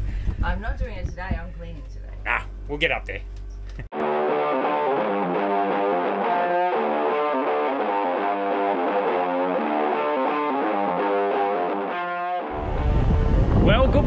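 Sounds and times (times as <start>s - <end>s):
guitar background music: 3.9s - 14.0s.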